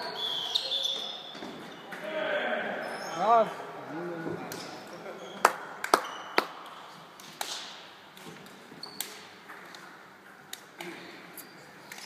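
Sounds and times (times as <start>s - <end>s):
shoes squeaking on hardwood court: 0.0s - 2.0s, 4.4s - 7.0s, 8.2s - 10.0s.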